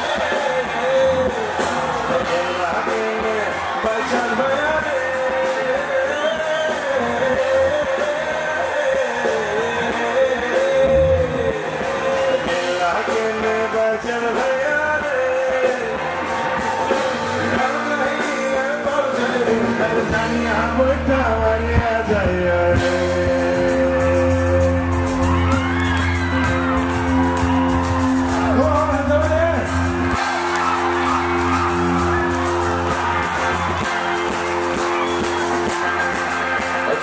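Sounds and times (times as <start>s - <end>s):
crowd shouting: 0.0s - 6.1s, 25.0s - 37.0s
live band with singer: 0.0s - 37.0s
deep bass: 10.8s - 11.7s, 19.0s - 34.0s.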